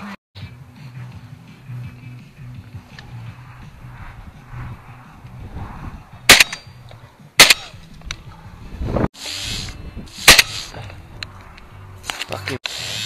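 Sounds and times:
shotgun shots: 6.3 - 6.7, 7.4 - 7.8, 10.3 - 10.7
short burst of hissing: 9.2 - 10.8, 12.7 - 13.0.

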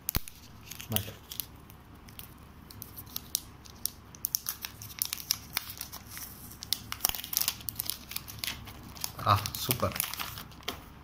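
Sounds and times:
plastic wrap crinkling: 0.1 - 11.0.

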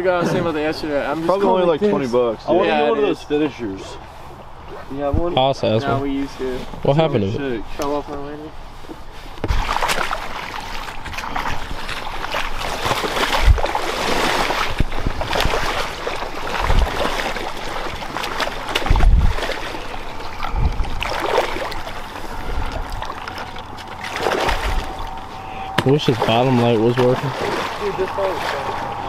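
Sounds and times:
water sloshing and splashing: 7.6 - 29.0.

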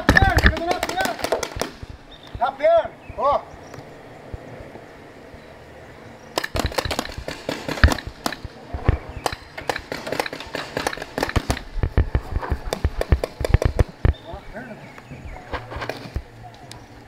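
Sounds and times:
paintball markers firing: 0.0 - 2.0, 6.4 - 14.2.

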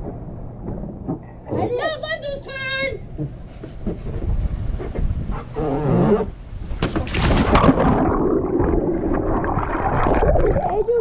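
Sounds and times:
water splashing: 6.7 - 11.0.

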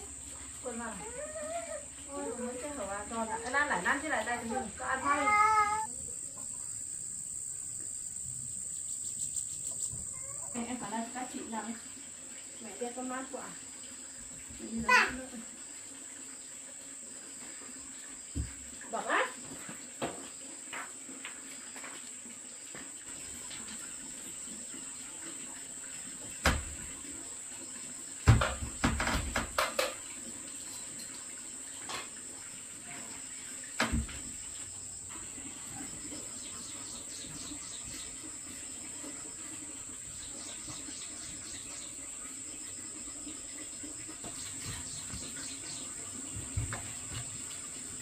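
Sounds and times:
high-pitched insect chirring: 5.0 - 10.7.

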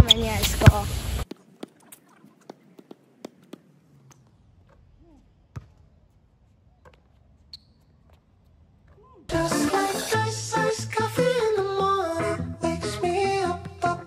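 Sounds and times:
basketball bouncing on hard court: 0.0 - 4.9, 5.5 - 6.1.

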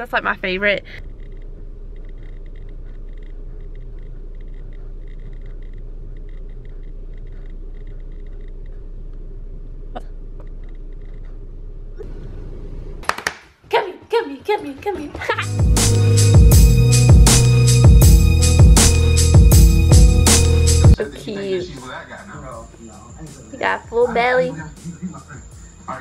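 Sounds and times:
faint ticking: 0.0 - 11.5
low hum inside car: 0.0 - 13.0.

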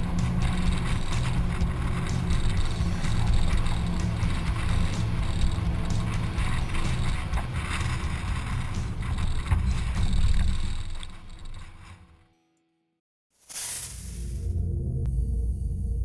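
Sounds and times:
low engine rumble: 0.0 - 12.0
vehicle rattling over stones: 0.0 - 12.2.

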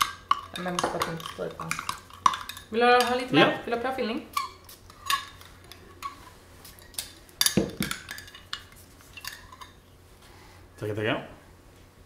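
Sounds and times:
metal spoon clinking glassware: 0.0 - 3.3, 6.8 - 9.8.

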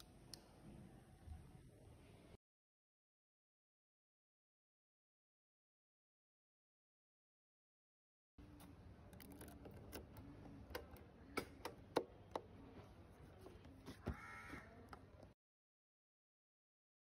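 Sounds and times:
sharp clicks: 8.5 - 12.6
bird cawing: 14.0 - 15.0.

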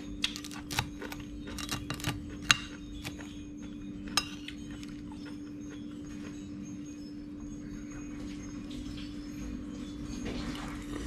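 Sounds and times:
spoon clinking on ceramic plate: 4.0 - 5.1.

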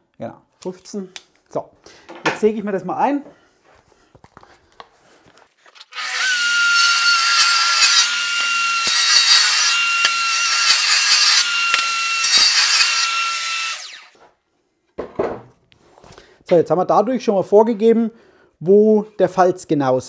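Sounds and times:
saw blade cutting wood: 5.7 - 14.2
table saw whining: 5.8 - 14.2.

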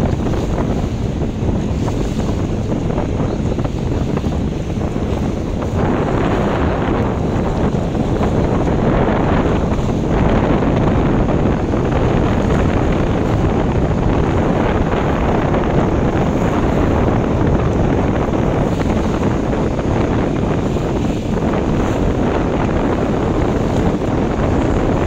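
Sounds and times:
boat on open water: 0.0 - 25.0
wind buffeting microphone: 0.0 - 25.0.

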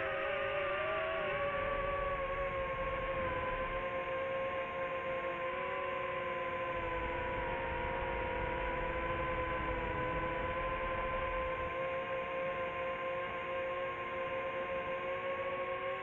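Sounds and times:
drone propellers humming: 0.0 - 4.2, 6.6 - 11.8.

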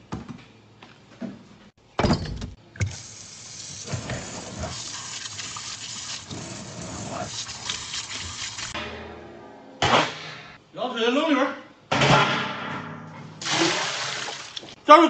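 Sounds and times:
tap water running into sink: 2.8 - 3.2, 3.8 - 8.8, 13.4 - 14.7
water splashing over meat: 13.4 - 14.7.

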